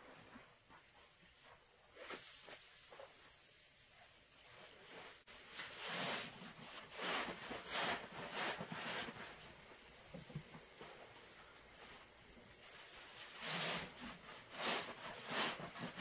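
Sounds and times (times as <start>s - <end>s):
wet sponge squelches: 4.5s - 9.6s, 11.8s - 16.0s.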